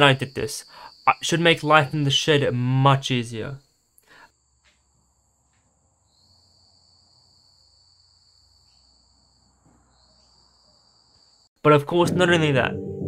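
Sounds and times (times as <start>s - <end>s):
faint insects chirring: 0.0s - 11.6s.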